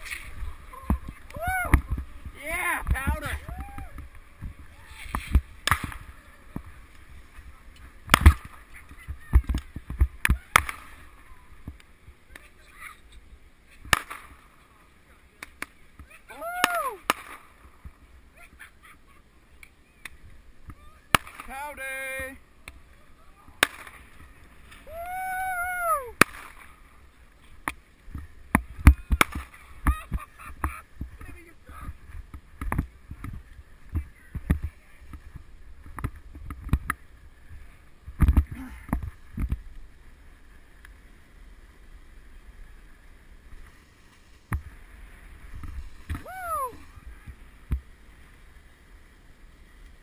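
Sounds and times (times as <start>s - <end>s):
skis sliding through powder snow: 0.0s - 9.8s, 22.9s - 50.0s
wind rumbling on microphone: 0.0s - 12.2s
person whooping: 0.7s - 1.8s, 3.4s - 4.0s, 16.3s - 17.0s, 24.8s - 26.2s, 46.2s - 46.9s.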